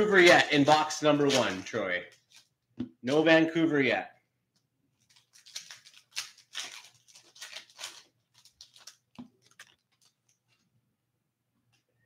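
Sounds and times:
foil wrapper tearing: 0.0s - 2.5s, 5.0s - 10.4s
cards clicking and rustling: 0.1s - 2.5s, 5.0s - 10.4s.

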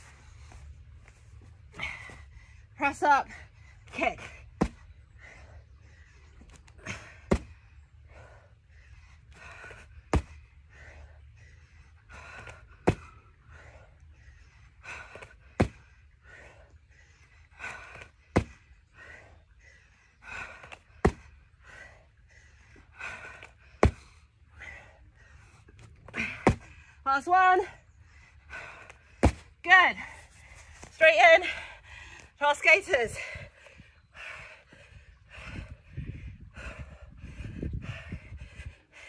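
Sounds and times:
person breathing hard: 33.1s - 39.0s.

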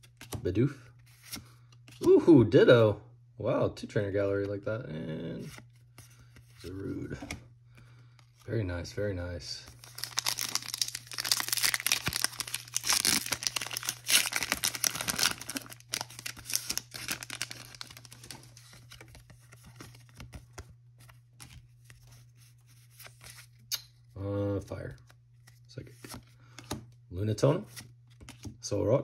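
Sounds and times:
cards rustling: 5.4s - 8.5s, 9.6s - 23.7s
foil wrapper tearing and crinkling: 9.8s - 18.8s.

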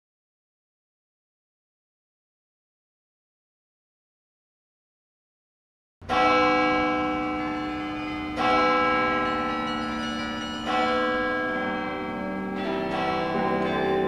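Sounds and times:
ringing bell-like strikes: 6.1s - 14.0s.

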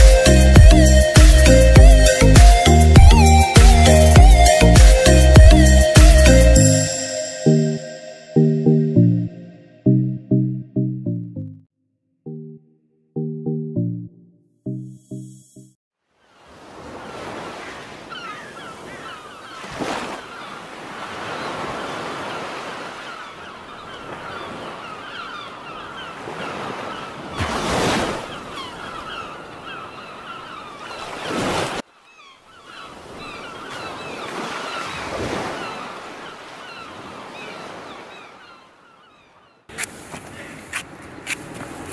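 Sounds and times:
seabird calls: 0.0s - 10.1s, 17.0s - 41.9s
ocean surf washing: 16.3s - 31.8s, 32.7s - 38.6s, 39.7s - 41.9s.

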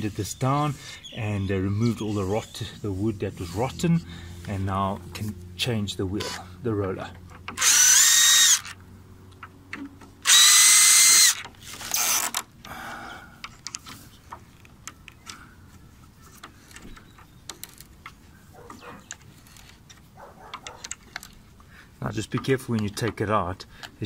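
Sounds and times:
cordless drill running: 7.6s - 8.8s, 10.2s - 12.4s.

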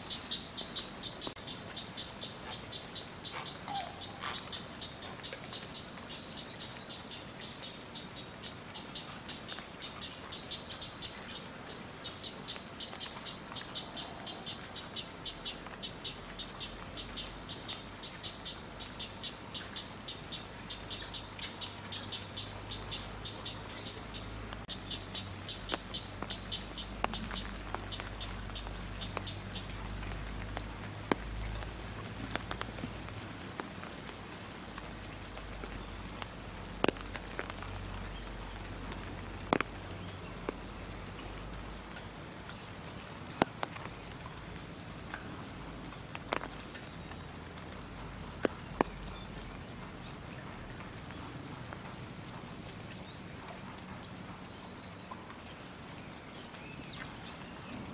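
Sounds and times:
rain drips: 0.0s - 57.9s
rapid high chirping call: 0.1s - 6.4s.

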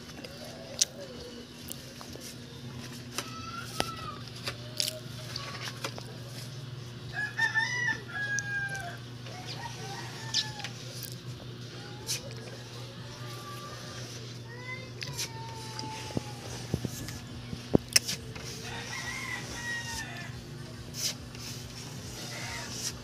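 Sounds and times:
rooster crowing: 7.1s - 11.0s, 11.9s - 14.2s, 18.4s - 20.5s, 22.0s - 23.0s
chicken calls: 7.1s - 11.2s.

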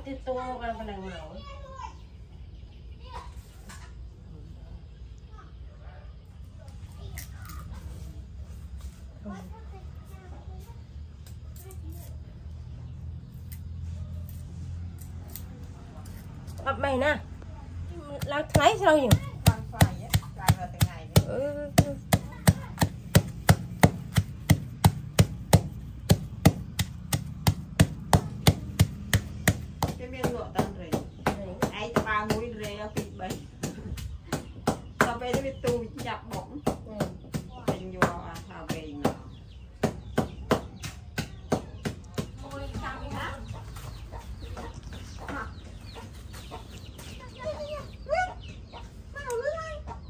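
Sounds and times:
rapid chopping strikes: 18.2s - 33.7s
chickens clucking: 42.5s - 50.0s.

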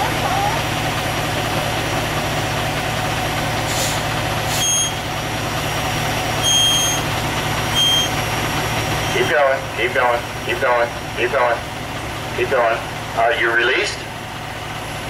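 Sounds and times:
diesel engine idling: 0.0s - 15.0s
air brake hiss: 3.6s - 4.7s
high electronic beeps: 7.7s - 8.2s.

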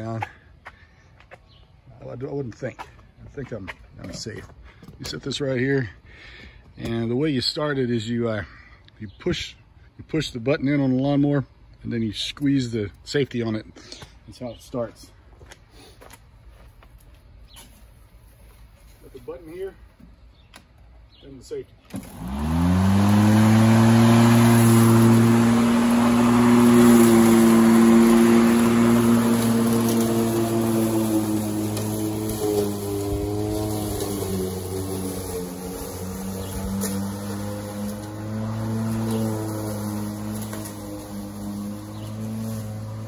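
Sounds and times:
electric lawnmower running: 21.9s - 43.0s.

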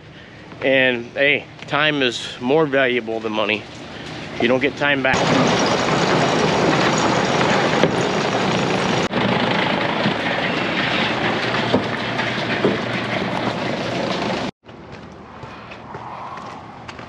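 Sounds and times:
conveyor machinery running: 2.2s - 14.5s.

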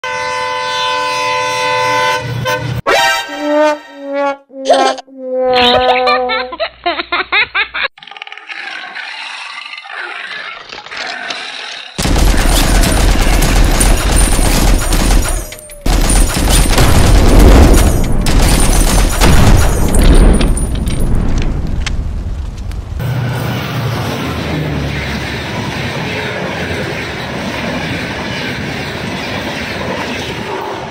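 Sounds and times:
rapid gunfire: 12.0s - 20.6s
blasts: 12.0s - 25.7s.

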